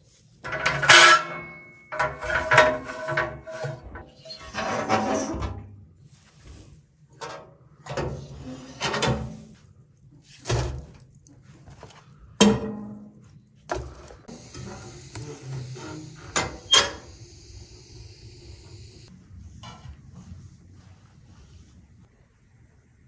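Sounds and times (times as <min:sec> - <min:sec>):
steady high hiss: 0:14.3 - 0:19.1.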